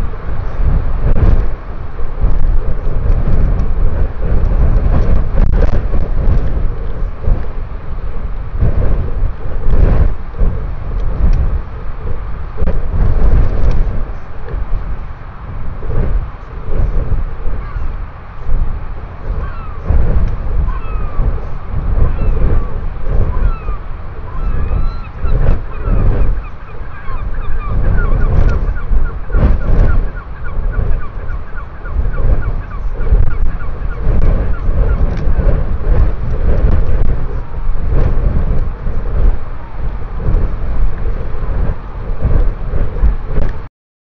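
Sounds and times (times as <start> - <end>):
strong wind buffeting microphone: 0.0 - 43.7
bird chirping: 20.6 - 35.0.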